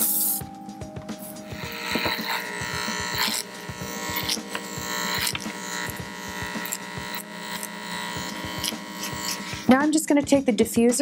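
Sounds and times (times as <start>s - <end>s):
electric hair clippers buzzing: 1.0s - 9.9s.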